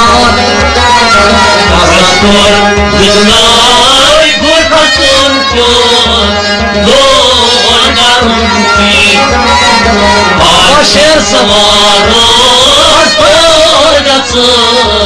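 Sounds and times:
instrumental accompaniment: 0:00.0 - 0:15.0
person singing melody: 0:00.0 - 0:15.0.

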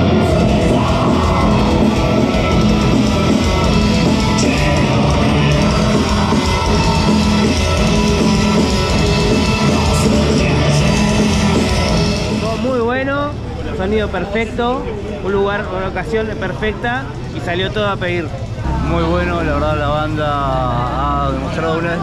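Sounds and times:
heavy metal band playing: 0:00.0 - 0:14.6.

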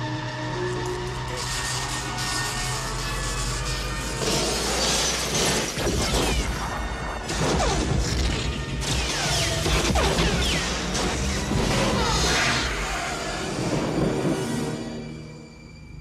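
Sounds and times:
orchestral film score: 0:00.0 - 0:16.0
shattering bursts: 0:04.2 - 0:12.2.

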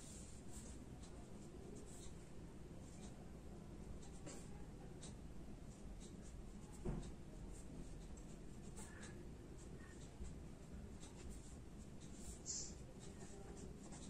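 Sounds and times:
marker scratching on paper: 0:01.8 - 0:02.2, 0:11.0 - 0:14.0
soft knock: 0:06.8 - 0:07.1.

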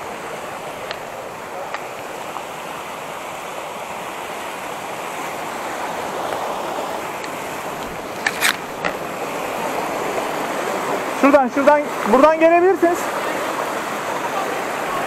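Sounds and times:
creek flowing: 0:00.0 - 0:15.0.

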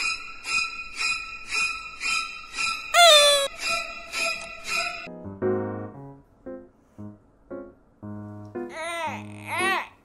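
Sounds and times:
dog whining howl: 0:03.0 - 0:03.5
soft piano music: 0:05.0 - 0:09.9.

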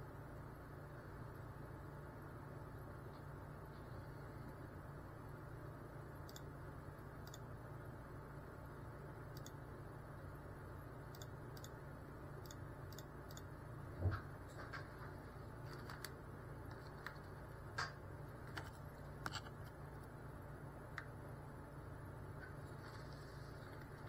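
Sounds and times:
faint hum and hiss: 0:00.0 - 0:24.0
light clicks and ticks: 0:09.3 - 0:09.6.

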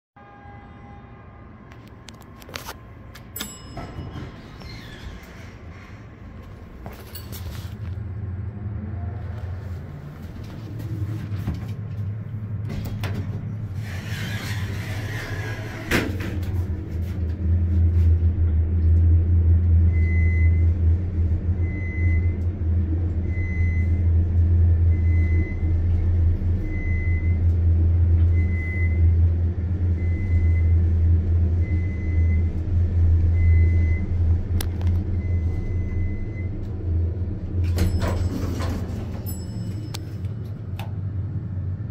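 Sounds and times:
elevator low hum: 0:00.8 - 0:41.9
elevator clunk: 0:03.2 - 0:05.7, 0:37.5 - 0:41.0.

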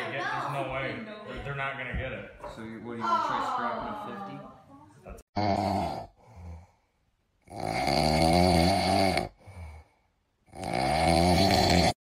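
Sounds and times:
dog snoring: 0:10.5 - 0:12.0.

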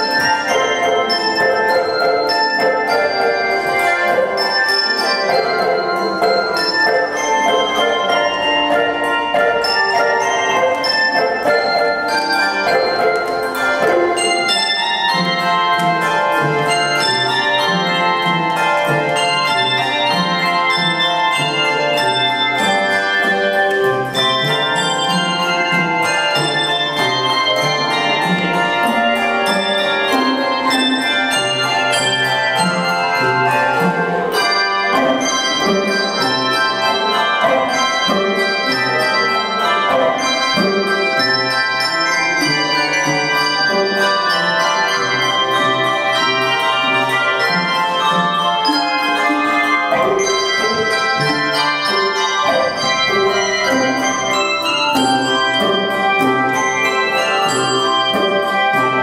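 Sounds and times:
handbell choir playing: 0:00.0 - 0:59.0.

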